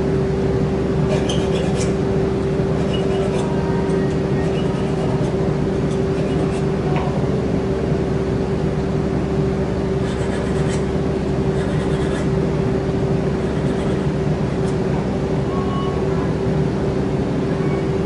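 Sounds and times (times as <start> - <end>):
steel scratching on wheel: 1.1 - 2.0, 2.8 - 6.7.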